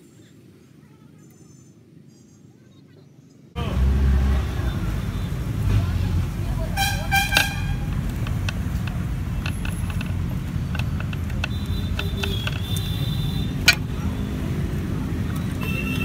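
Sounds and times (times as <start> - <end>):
low mechanical rumble: 3.6 - 15.4
metal parts clicking: 7.3 - 13.9.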